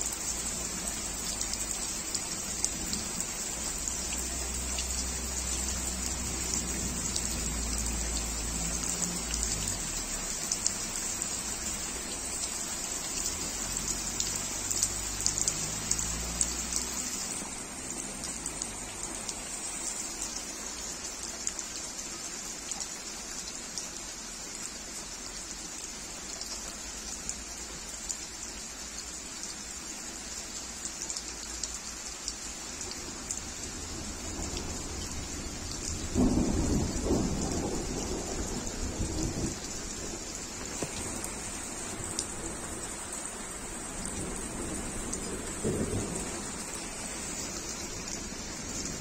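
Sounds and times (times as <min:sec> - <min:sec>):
heavy rain splashing: 0:00.0 - 0:49.0
thunder rumbling: 0:33.8 - 0:42.6, 0:44.0 - 0:49.0.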